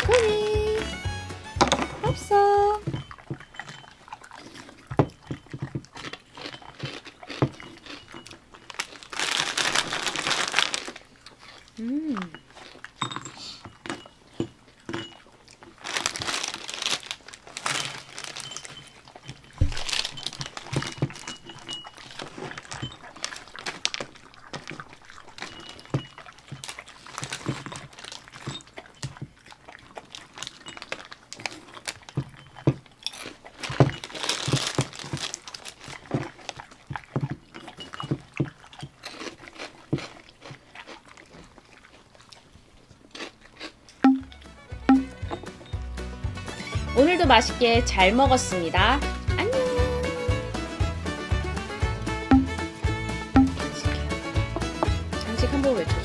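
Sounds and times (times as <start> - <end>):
crunching and chewing crackers: 3.1 - 13.0, 13.8 - 45.7.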